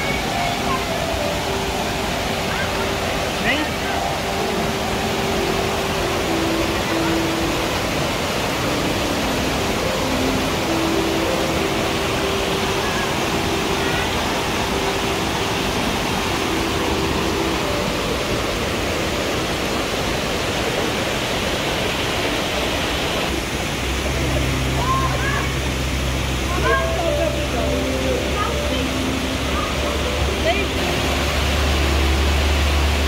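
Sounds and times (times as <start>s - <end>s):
water rushing over cascade: 0.0s - 33.0s.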